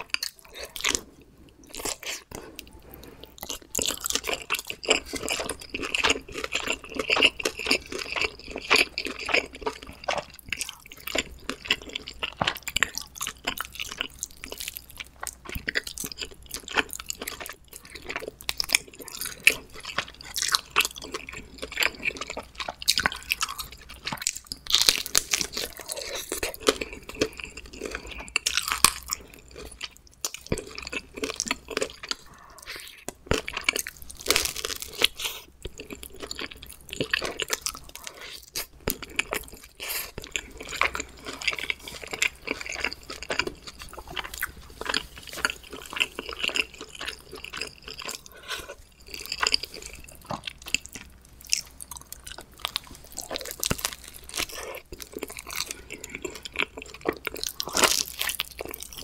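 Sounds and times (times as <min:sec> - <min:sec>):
chewing and crunching pizza: 0:00.0 - 0:59.0.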